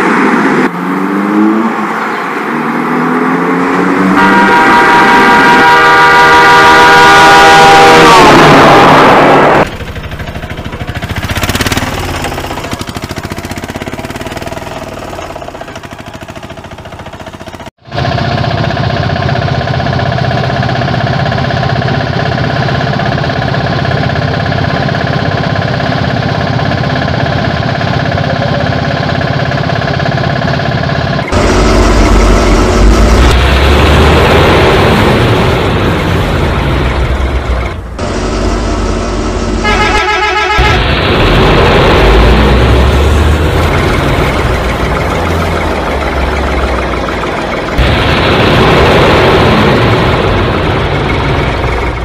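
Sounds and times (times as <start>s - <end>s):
engine hum: 0.0s - 52.0s
engine running: 0.0s - 52.0s
vehicle horn: 4.0s - 9.6s, 38.0s - 40.9s.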